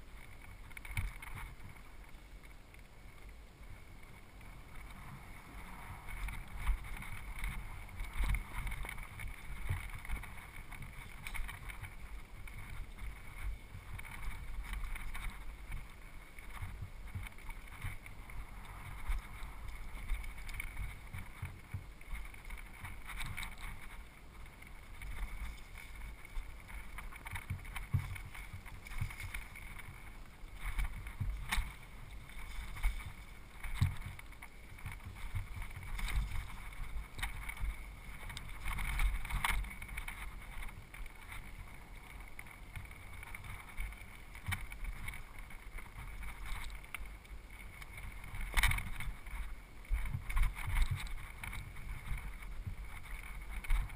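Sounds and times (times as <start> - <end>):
bike knocks and rattles: 26.6 - 30.0.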